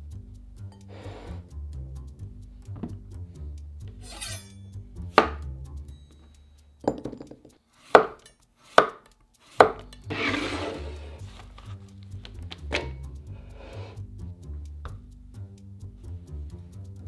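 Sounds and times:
hands rustling slices: 4.0 - 4.6, 7.8 - 14.0
knife striking cutting board: 4.0 - 4.6, 5.2 - 5.4, 6.9 - 10.8.

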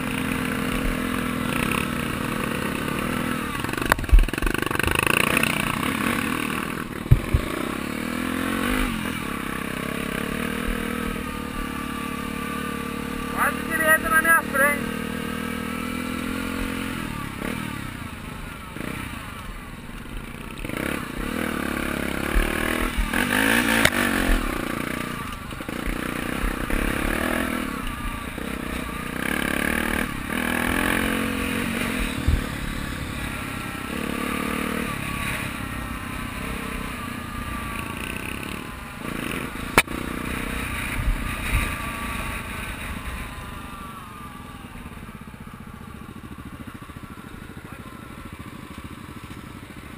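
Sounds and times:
dirt bike engine revving: 0.0 - 49.9
bike knocks and rattles: 7.0 - 7.7.

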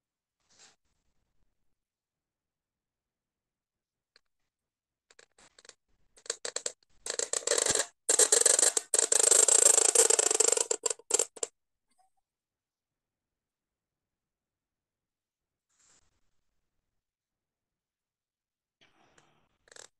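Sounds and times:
pen nib scratching on paper: 6.2 - 11.5.

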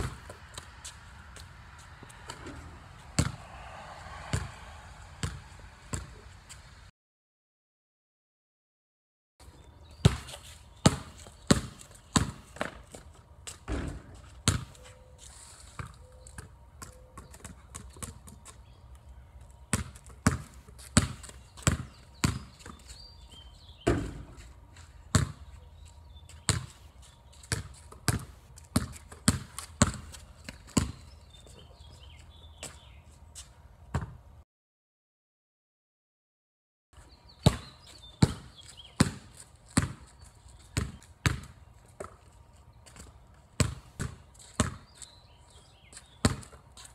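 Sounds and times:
basketball bouncing on concrete: 0.0 - 3.6, 4.2 - 6.3, 9.9 - 14.9, 15.8 - 18.6, 19.7 - 31.7, 33.9 - 34.2, 37.4 - 46.9.

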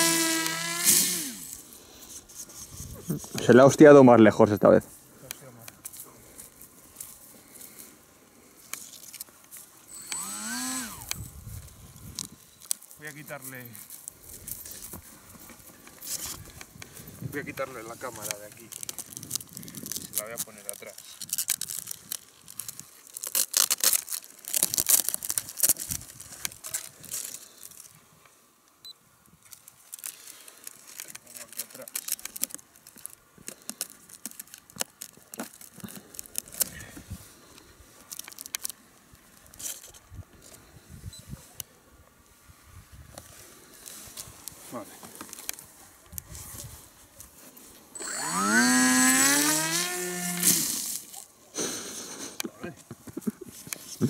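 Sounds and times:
electric motor whine: 0.0 - 1.6, 9.9 - 11.3, 48.0 - 50.9
cardboard crackling and rustling: 18.0 - 27.9.

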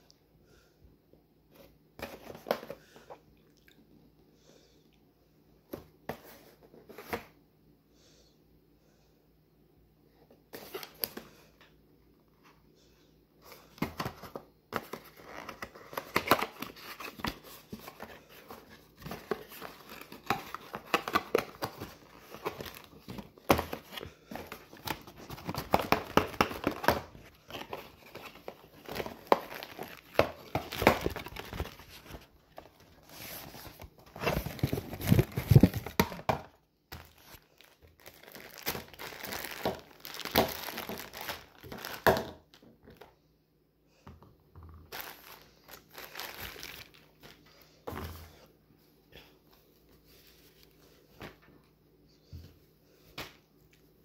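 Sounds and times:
plastic packaging crinkling: 14.9 - 36.2, 36.9 - 42.3, 44.9 - 47.4.

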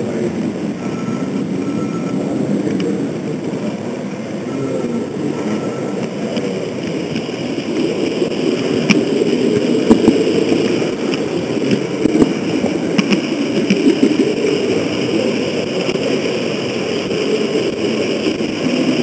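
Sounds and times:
wheels clicking over rails: 0.0 - 19.0.

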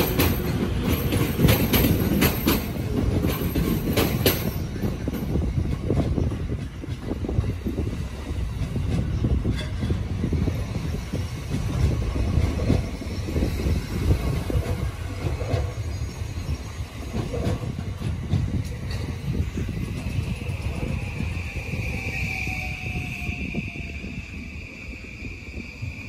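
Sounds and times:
wheels clicking over rail joints: 0.0 - 10.6, 17.0 - 20.1
train rumbling: 0.0 - 26.0.

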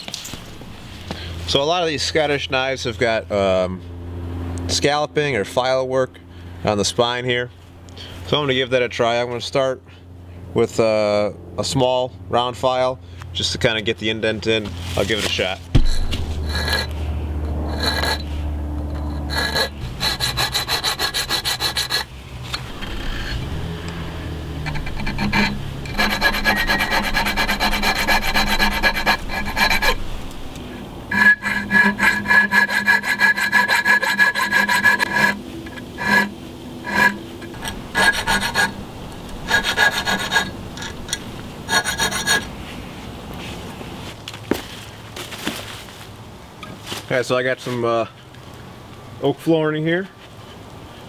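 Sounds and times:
file rasping on steel: 15.8 - 23.5, 24.6 - 30.1, 31.1 - 38.8, 39.4 - 42.5.

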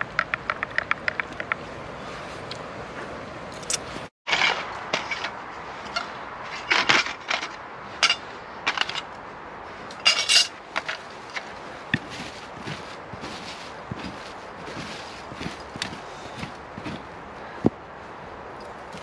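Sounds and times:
metal burner clinking: 8.0 - 9.1, 9.9 - 11.0.

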